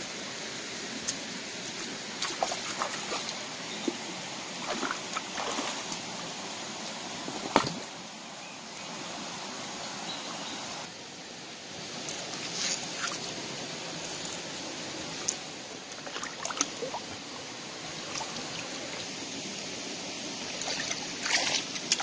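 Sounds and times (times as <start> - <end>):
stream running over rocks: 0.0 - 22.0
wading splashes: 1.6 - 6.2, 15.9 - 17.3, 20.5 - 22.0.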